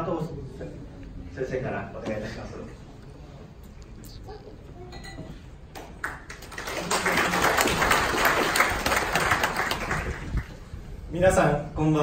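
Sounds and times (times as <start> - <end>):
audience applause: 6.0 - 10.6.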